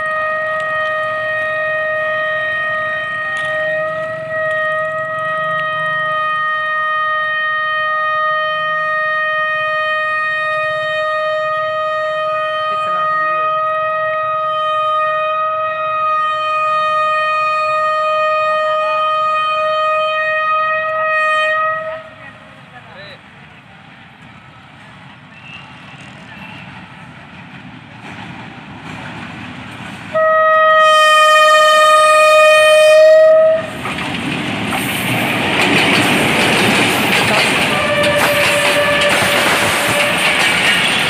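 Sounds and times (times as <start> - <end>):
locomotive horn blast: 0.0 - 22.7, 30.1 - 33.8, 37.4 - 41.0.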